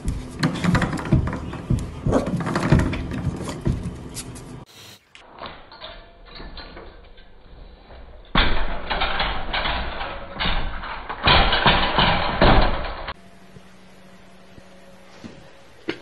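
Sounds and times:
knocking and scuffling: 0.0s - 4.7s, 6.2s - 13.2s
metal gate rattling: 0.3s - 4.1s, 5.5s - 7.4s, 8.0s - 13.2s.

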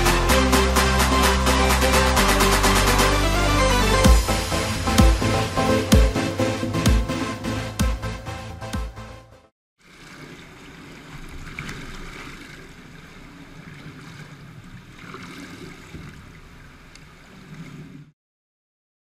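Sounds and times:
pool water sloshing and splashing: 9.8s - 18.2s.

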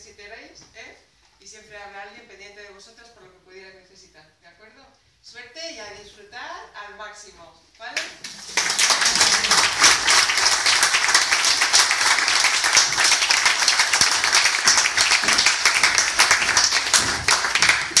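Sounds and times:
crowd applauding: 8.3s - 18.0s.

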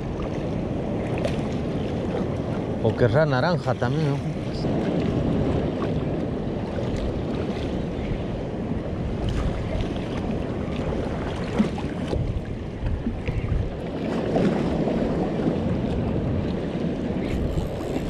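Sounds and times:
sea wash: 0.0s - 18.0s
wind buffeting microphone: 0.0s - 18.0s.

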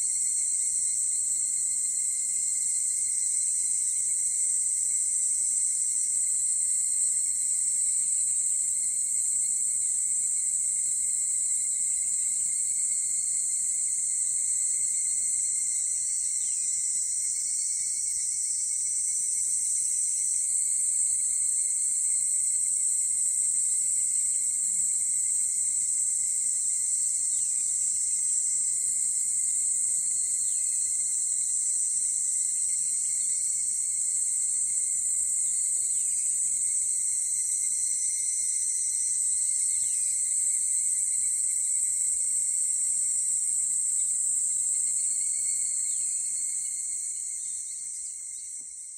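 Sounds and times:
cicadas chorus ringing: 0.0s - 48.9s.

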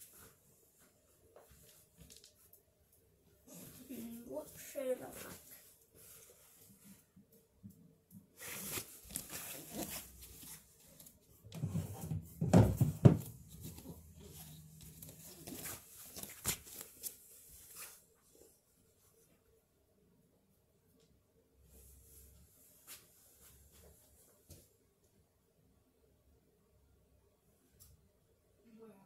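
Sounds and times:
rustling of objects handled: 0.0s - 2.7s, 3.5s - 7.3s, 8.2s - 19.4s.

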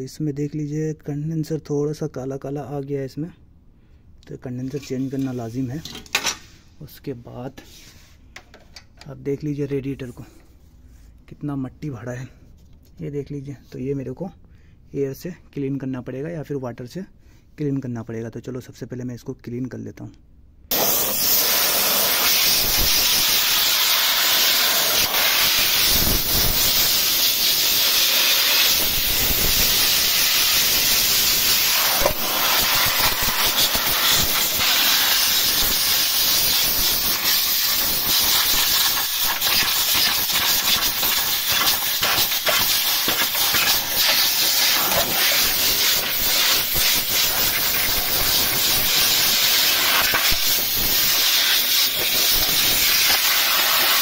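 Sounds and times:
air blow gun hissing: 20.7s - 54.0s.

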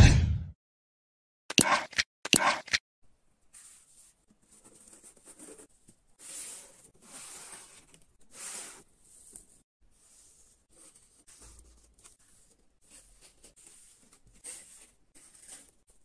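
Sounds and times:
loud swish: 0.0s - 0.6s.

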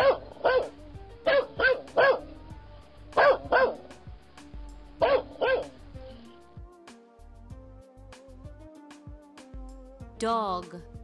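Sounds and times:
dog barking: 0.0s - 2.4s, 3.2s - 3.9s, 5.0s - 5.8s
light background music: 0.0s - 11.0s.

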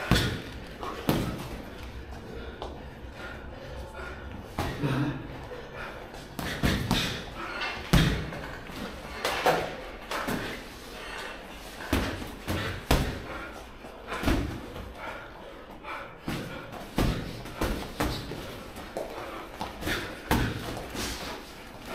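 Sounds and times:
padded punches thumping: 0.0s - 1.6s, 6.4s - 7.2s, 11.9s - 13.3s, 16.3s - 18.4s, 19.8s - 20.9s.

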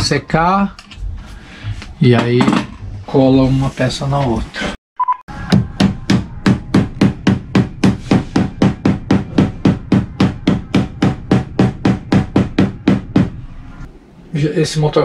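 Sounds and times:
rapid percussive knocks: 5.5s - 13.4s.

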